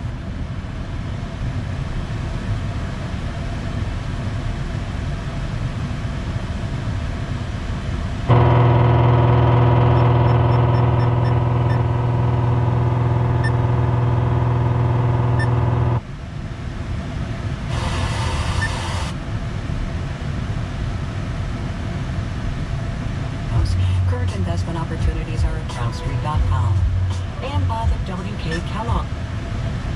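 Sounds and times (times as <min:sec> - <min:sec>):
radio electrical buzz: 0:08.3 - 0:16.0, 0:17.7 - 0:19.2
radio static hiss: 0:08.3 - 0:16.0, 0:17.7 - 0:19.2, 0:23.5 - 0:29.1.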